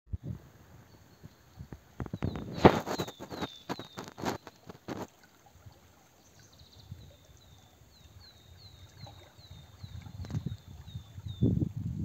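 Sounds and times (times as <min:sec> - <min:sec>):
small bird singing: 0:00.9 - 0:04.7, 0:06.2 - 0:11.6.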